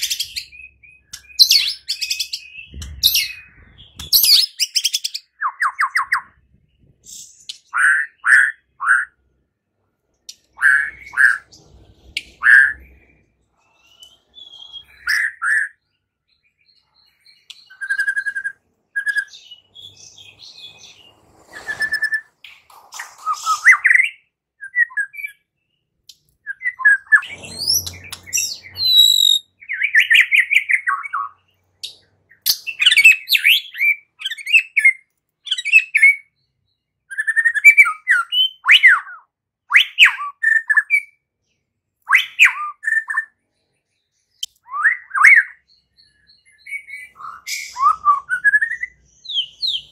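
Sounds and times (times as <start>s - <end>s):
bird singing whistled phrases: 16.6s - 22.4s, 23.2s - 25.5s, 26.4s - 36.5s, 37.1s - 41.2s, 42.1s - 43.3s, 44.4s - 49.9s.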